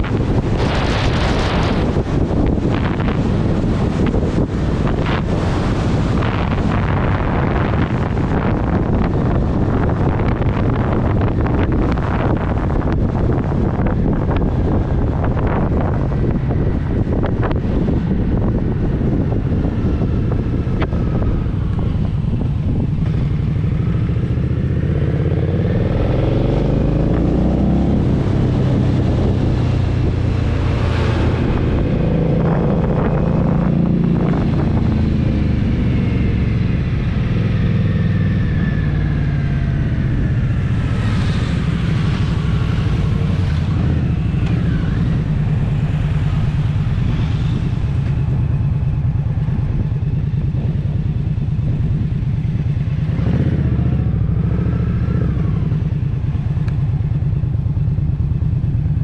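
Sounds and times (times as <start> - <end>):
motorcycle engine and exhaust: 0.0 - 59.0.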